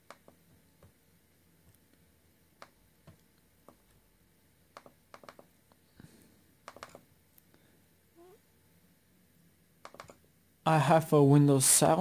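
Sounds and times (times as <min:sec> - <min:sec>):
computer mouse clicks: 0:00.0 - 0:00.4, 0:04.7 - 0:05.5, 0:06.6 - 0:07.0, 0:09.8 - 0:10.2.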